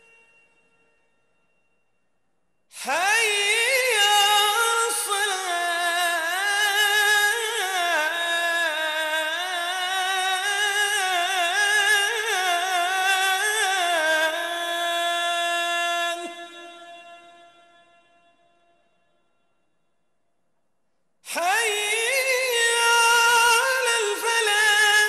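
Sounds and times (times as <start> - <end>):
person singing unaccompanied: 2.8 - 16.7, 21.3 - 25.0.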